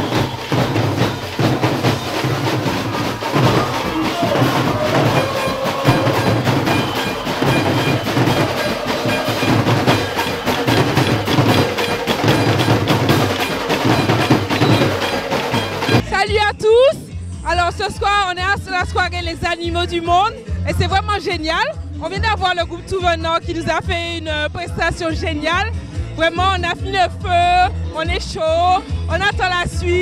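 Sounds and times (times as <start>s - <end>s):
drum band playing: 0.0s - 16.2s.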